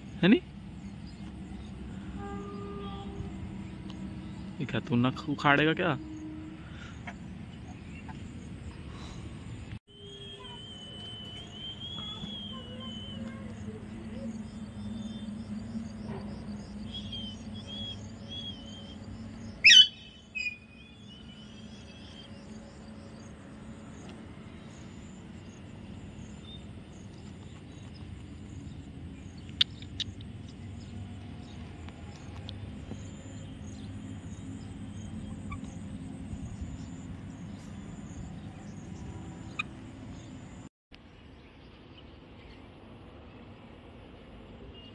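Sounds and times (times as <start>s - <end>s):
parakeet calling: 16.9s - 22.3s, 34.5s - 36.0s, 38.8s - 40.3s.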